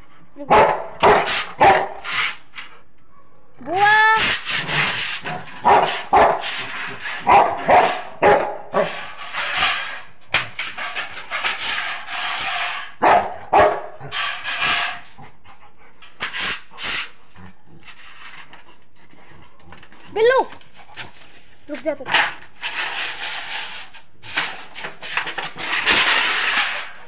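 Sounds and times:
dog barking: 0.5s - 2.0s, 3.0s - 3.6s, 5.6s - 6.5s, 7.2s - 9.0s, 13.0s - 14.0s.

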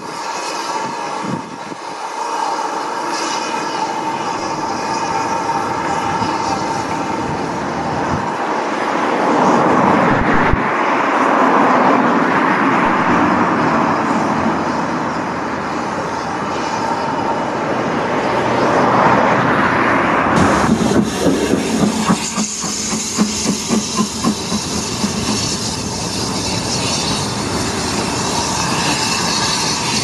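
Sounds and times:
road traffic passing: 0.0s - 30.0s.

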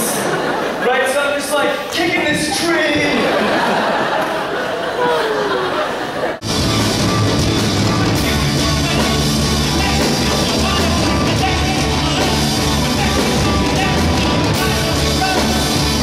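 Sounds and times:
rock band playing: 6.4s - 16.0s
man singing: 6.5s - 16.0s.

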